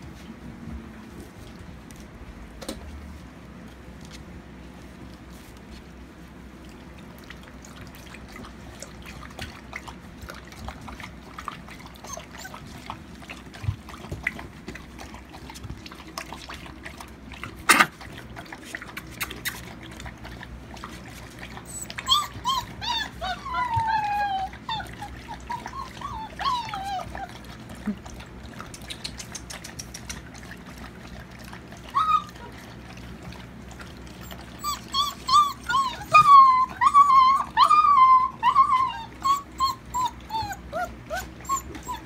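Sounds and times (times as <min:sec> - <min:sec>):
soft rustles and clicks: 0:00.0 - 0:06.5
puppies scuffling: 0:00.0 - 0:06.6, 0:08.4 - 0:31.0
puppies whining and yelping: 0:10.6 - 0:15.8, 0:18.9 - 0:28.0, 0:30.9 - 0:32.9, 0:33.9 - 0:42.0.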